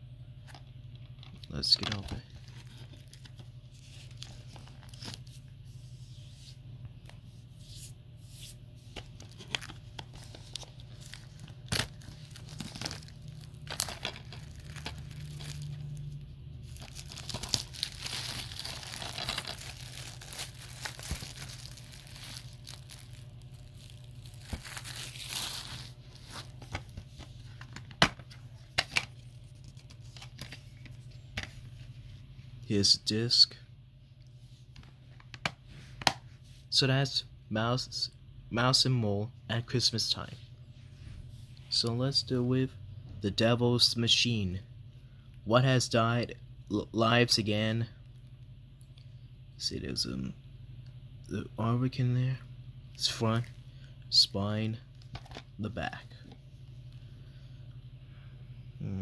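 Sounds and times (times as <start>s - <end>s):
cellophane wrap tearing and crinkling: 9.3s - 26.6s.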